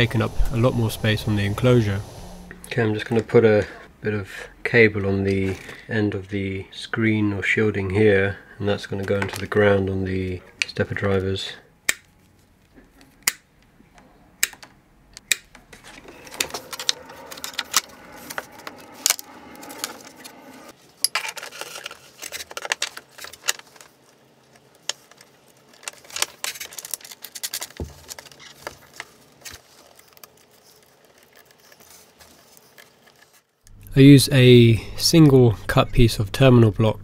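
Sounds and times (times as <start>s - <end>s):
wire rustling: 15.7s - 20.7s.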